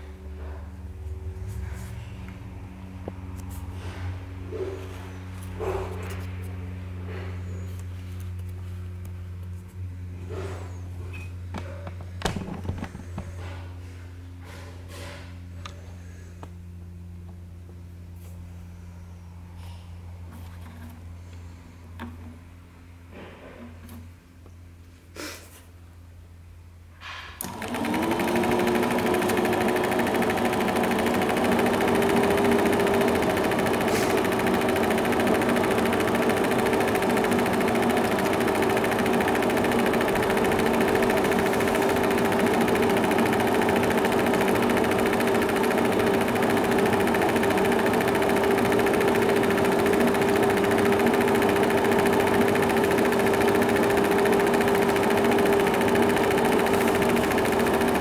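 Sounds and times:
film projector motor whirring: 27.4s - 58.0s.

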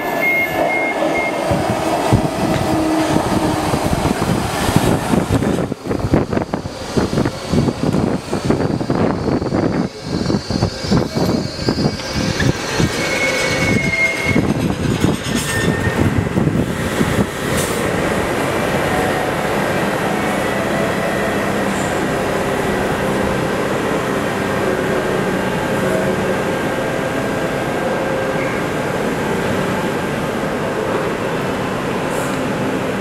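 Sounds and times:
subway train humming: 0.0s - 33.0s
train wheels clattering on rails: 0.5s - 19.4s
high wheel squeal: 6.0s - 16.2s, 18.7s - 24.0s.

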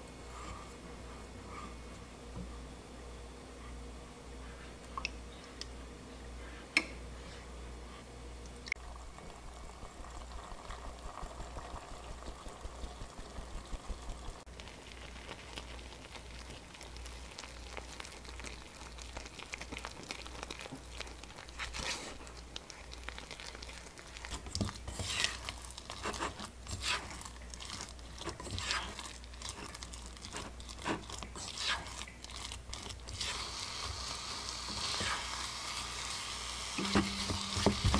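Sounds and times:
liquid bubbling in a saucepan: 8.5s - 37.9s
spatula scraping a pan: 24.3s - 32.2s, 34.6s - 35.5s.

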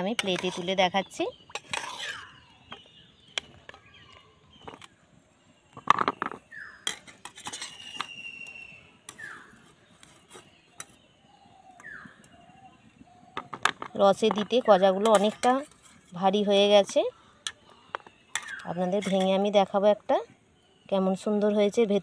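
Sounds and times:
spatula scraping steel bowl: 0.1s - 2.4s, 6.8s - 8.0s.

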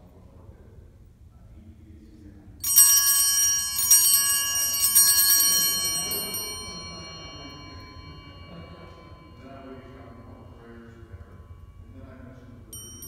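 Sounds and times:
altar bells ringing: 2.6s - 13.0s.

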